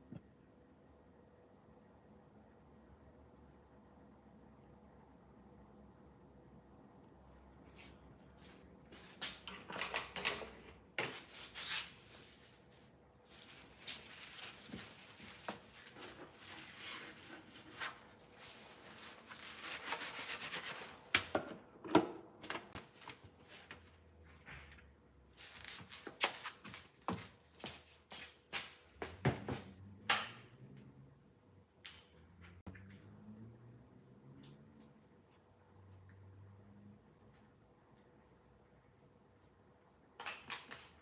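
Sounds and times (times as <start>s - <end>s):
person rustling and handling things: 7.2s - 29.7s.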